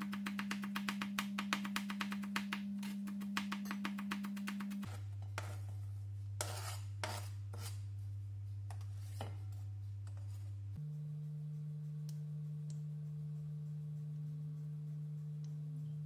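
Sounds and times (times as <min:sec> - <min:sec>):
knife scraping cutting board: 0:04.6 - 0:05.8, 0:06.4 - 0:07.8.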